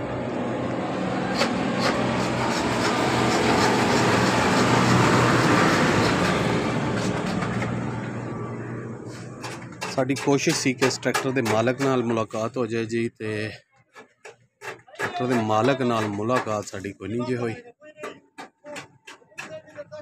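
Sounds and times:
low engine hum: 0.0 - 10.0
motor vehicle passing: 0.0 - 10.0.

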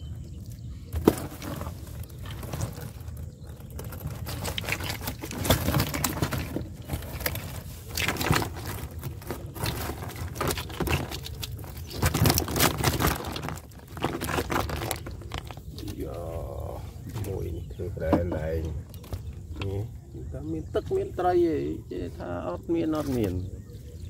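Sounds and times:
fish flapping in plastic basket: 0.9 - 16.0
net rustling: 0.9 - 16.0.

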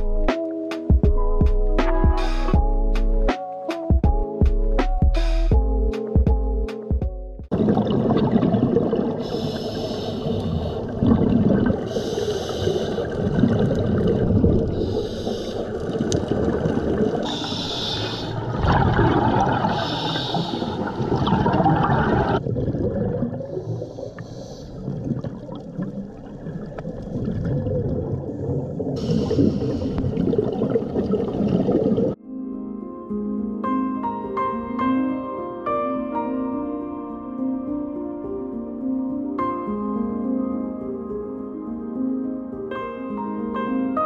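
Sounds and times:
bubbling of exhaled air: 7.5 - 32.2
regulator breathing hiss: 9.2 - 10.9, 11.9 - 13.2, 14.8 - 15.8, 17.3 - 18.4, 19.7 - 21.0, 23.6 - 24.9, 29.0 - 30.2.

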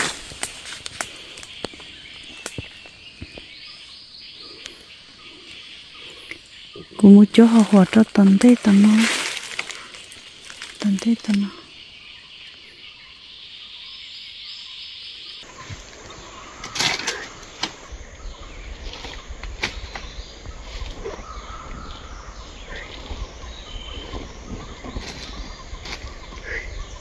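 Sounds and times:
dry leaves rustling and crackling: 0.0 - 3.4, 7.3 - 11.6
forest ambience hiss: 0.0 - 27.0.

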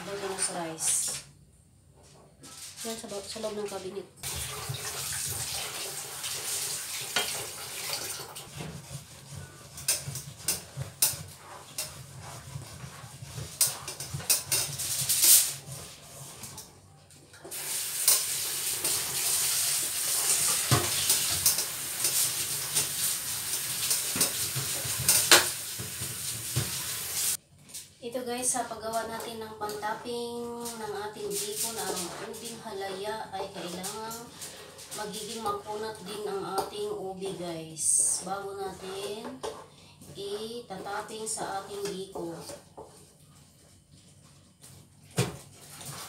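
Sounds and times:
wooden spatulas scraping pans: 0.0 - 1.2, 7.1 - 16.7, 18.0 - 26.8, 30.5 - 37.3, 38.2 - 43.0.

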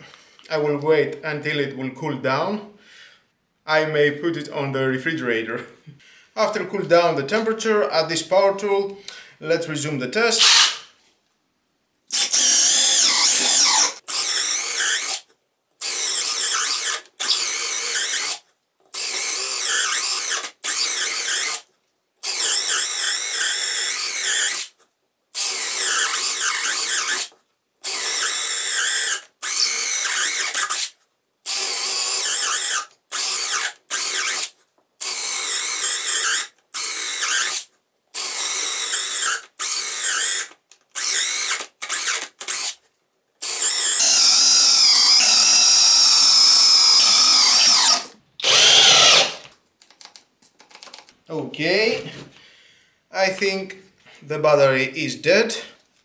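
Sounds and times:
cordless drill drilling: 12.1 - 18.4, 19.0 - 24.8, 25.4 - 30.9, 31.5 - 42.8, 43.4 - 49.5.

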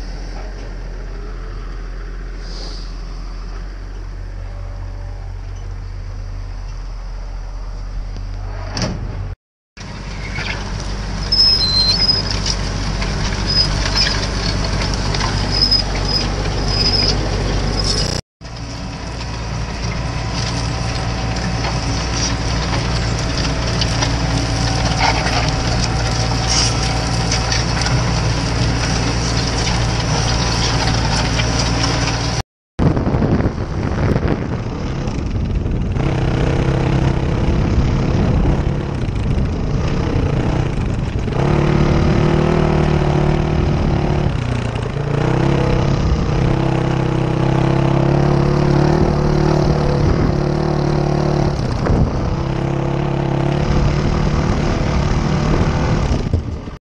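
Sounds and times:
tractor engine running under load: 9.8 - 56.8
dirt bike engine revving: 35.9 - 38.8, 39.5 - 56.2.

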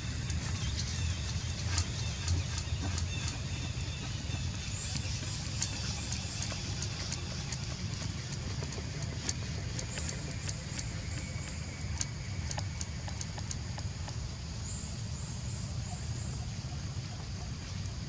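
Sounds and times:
sharp clicks: 4.9 - 14.2.

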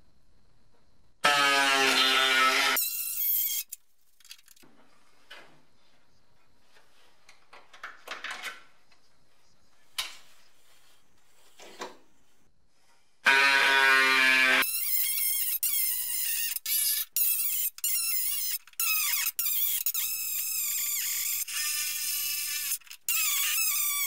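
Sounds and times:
pneumatic drill through sheet metal: 1.2 - 3.8.

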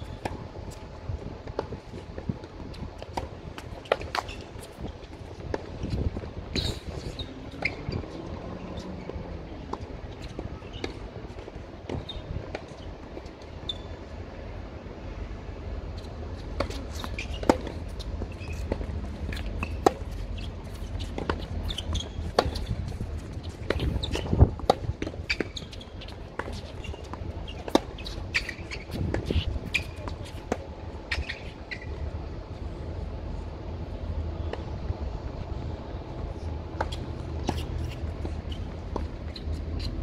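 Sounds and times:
tennis ball bouncing on court: 16.5 - 31.9.

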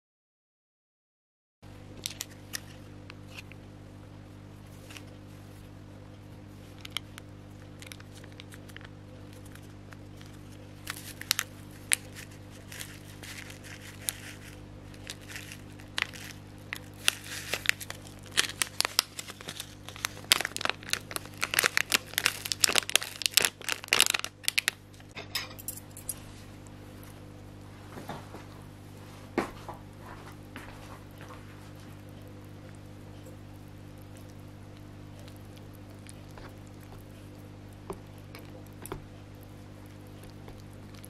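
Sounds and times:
steady low hum: 1.6 - 41.0
plastic sachets crinkling: 2.0 - 3.6, 6.7 - 25.2.

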